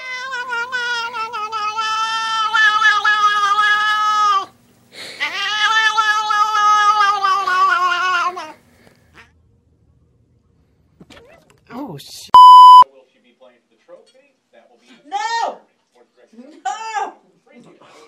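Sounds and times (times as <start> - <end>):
cat meowing: 0.0 - 4.5, 5.2 - 8.6.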